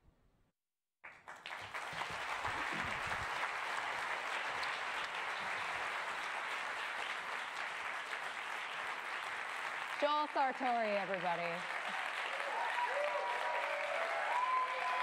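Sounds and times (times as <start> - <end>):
large audience applauding: 1.0 - 15.0.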